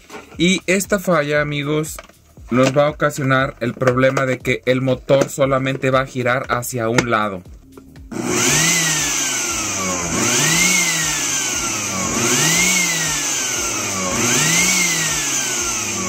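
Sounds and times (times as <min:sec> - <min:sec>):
blender motor whining: 0:08.1 - 0:16.0.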